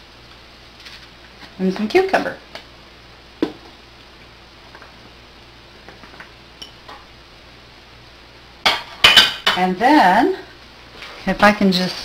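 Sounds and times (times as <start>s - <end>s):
dishware clinking: 8.7s - 9.6s.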